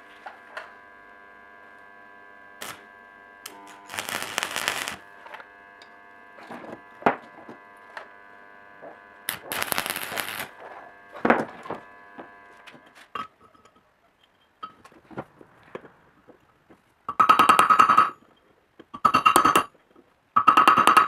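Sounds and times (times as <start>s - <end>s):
steady hum: 0.0s - 12.7s.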